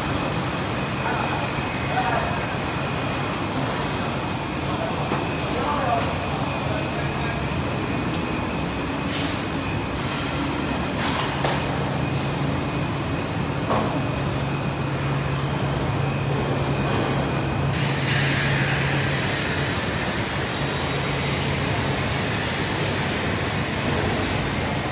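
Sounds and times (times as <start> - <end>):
loud hiss of air: 9.0 - 9.6, 17.7 - 24.8
short air hisses: 17.8 - 19.6.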